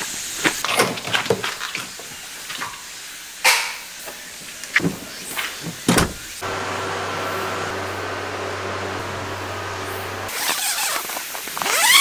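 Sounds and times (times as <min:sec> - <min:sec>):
door knocks and thumps: 0:04.8 - 0:06.3.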